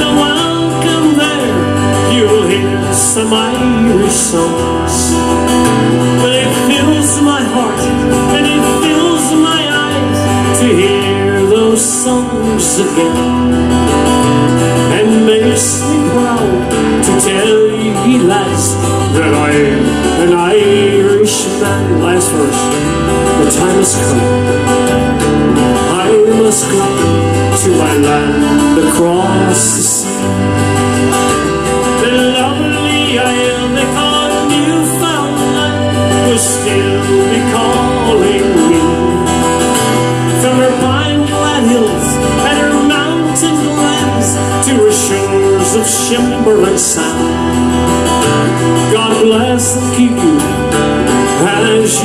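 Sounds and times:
upbeat folk tune with guitar: 0.0 - 52.0.

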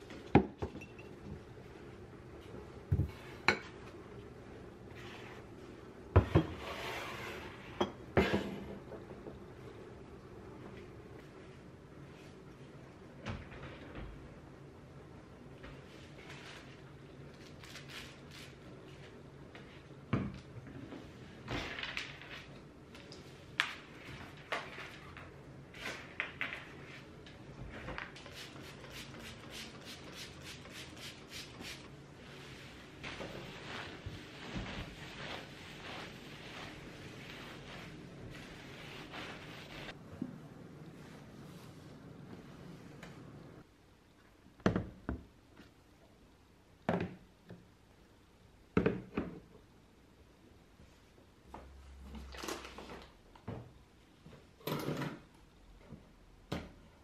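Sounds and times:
cloth rubbing desktop: 6.5 - 8.4, 28.2 - 40.0.

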